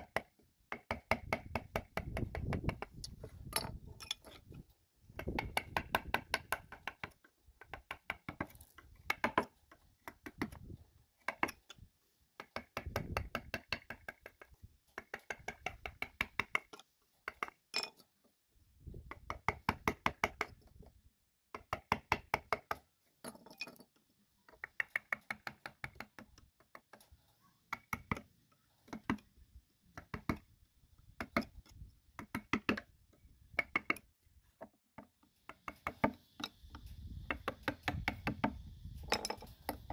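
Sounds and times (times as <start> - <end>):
mallet tapping wood chisel: 0.0 - 3.7, 5.2 - 10.6, 12.4 - 17.6, 21.5 - 22.8, 24.4 - 26.9, 29.9 - 30.4, 31.2 - 31.5, 32.2 - 34.1, 35.0 - 36.6, 37.2 - 38.6.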